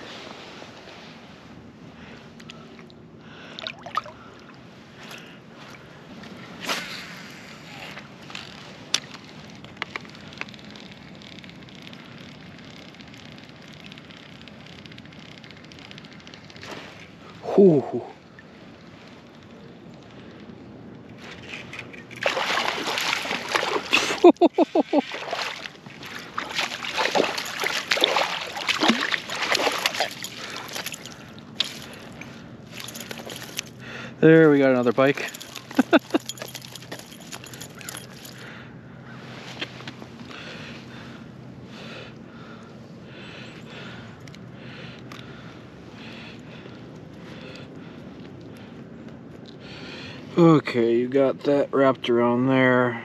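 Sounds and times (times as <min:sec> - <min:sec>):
water and wind: 0:00.0 - 0:53.0
fishing tackle clicks: 0:08.3 - 0:17.1, 0:21.0 - 0:23.5, 0:26.1 - 0:33.8, 0:34.9 - 0:38.5
water splashing against kayak: 0:22.0 - 0:33.6.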